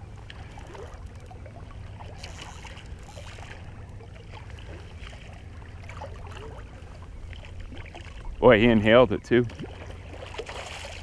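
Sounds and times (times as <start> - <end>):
small clicks and gurgles: 0.2 - 6.7.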